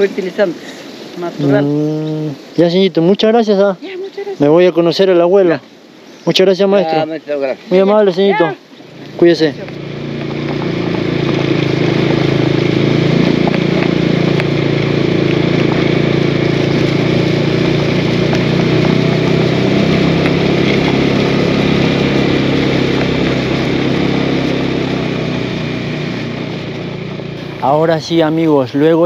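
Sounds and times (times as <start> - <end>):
vehicle engine running: 7.9 - 29.0.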